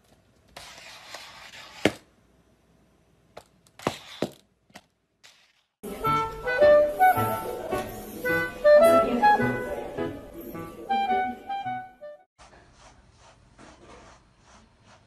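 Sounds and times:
music: 5.8 - 12.3.

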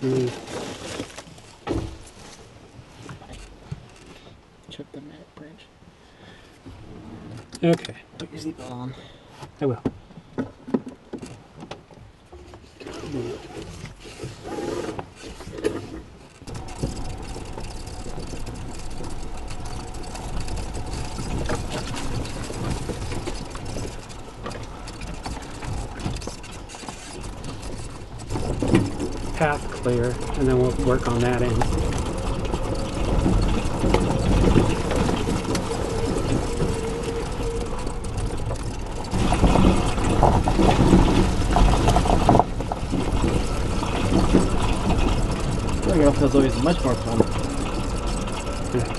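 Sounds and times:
body rattles and knocks: 0.0 - 4.8, 9.4 - 12.7, 13.6 - 48.9
low rumble: 16.5 - 26.6, 27.2 - 48.9.

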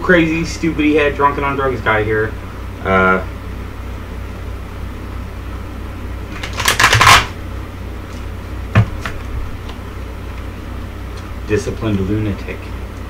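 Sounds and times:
cards being shuffled: 6.3 - 7.4.

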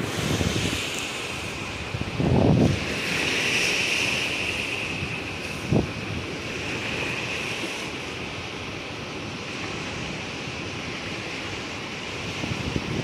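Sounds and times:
wind on microphone: 0.0 - 8.3, 12.1 - 13.0
small waves washing: 0.0 - 13.0.

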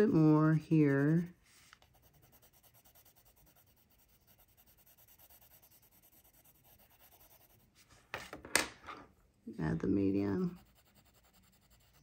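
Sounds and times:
pencil shading on paper: 0.0 - 7.8, 10.3 - 12.0.

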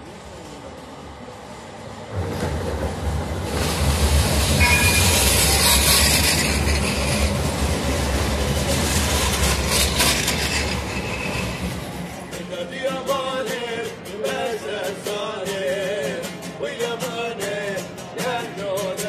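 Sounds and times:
tram rolling on rails: 0.0 - 19.0
brief high tone: 4.6 - 5.3.

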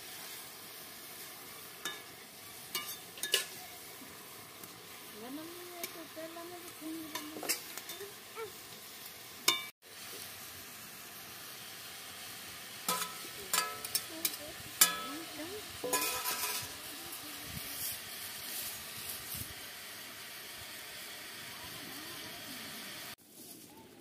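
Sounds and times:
steady sizzle: 0.0 - 23.8
metal spatula scraping a pan: 1.8 - 3.7, 7.0 - 8.2, 12.9 - 16.8.

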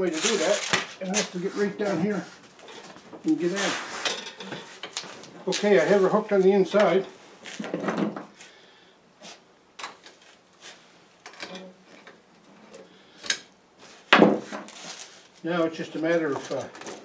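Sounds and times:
tire chain clinking: 15.6 - 17.0.

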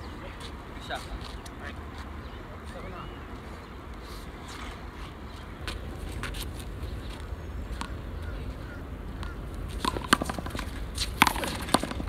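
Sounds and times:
ball hitting concrete wall: 9.2 - 12.0
gloved hand striking ball: 9.2 - 12.0.

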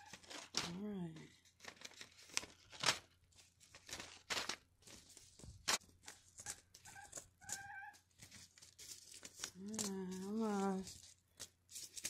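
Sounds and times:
paper packets rustling: 0.0 - 12.0.

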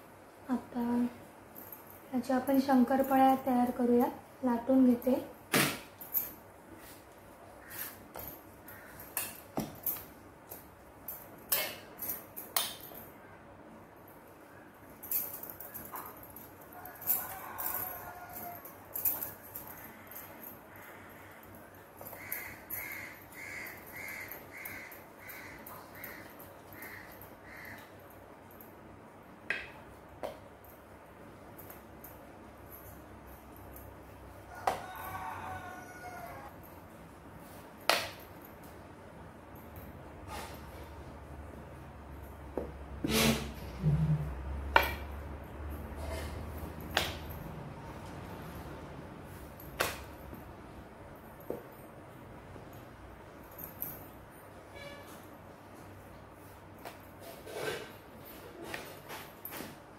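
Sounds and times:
faint low hum: 0.0 - 59.9
crow cawing: 8.6 - 9.0, 22.1 - 27.9.

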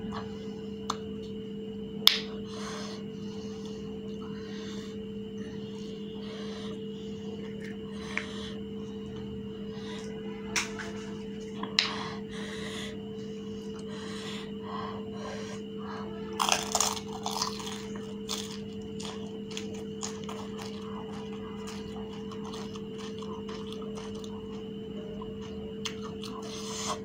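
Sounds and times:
steady low hum: 0.0 - 27.0
crunching bite into crisp shell: 16.3 - 24.6
wet chewing with clicks: 16.4 - 27.0.

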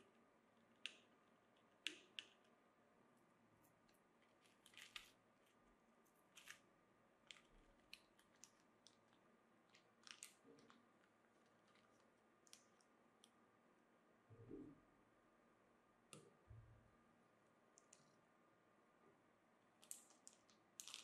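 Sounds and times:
plastic bag crinkling: 9.7 - 10.8, 19.8 - 21.0.

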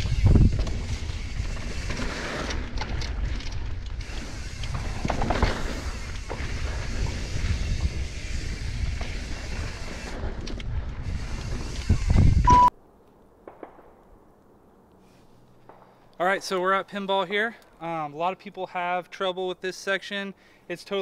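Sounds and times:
wind buffeting microphone: 0.0 - 1.9, 2.7 - 12.5
bike rattling: 0.0 - 12.5.

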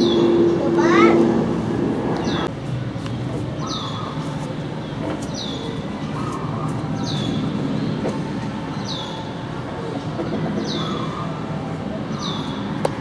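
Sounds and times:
steady low rumble: 0.0 - 3.6.

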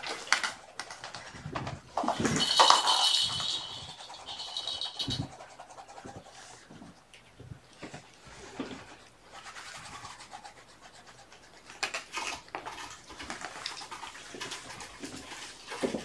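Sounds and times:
kittens scratching fabric and carpet: 3.6 - 16.0.

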